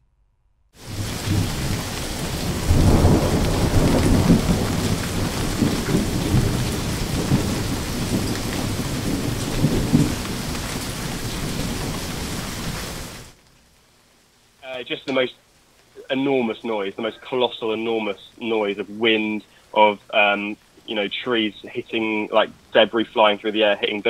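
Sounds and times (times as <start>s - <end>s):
strong wind gusts: 0.8s - 13.1s
driving rain: 0.8s - 24.0s.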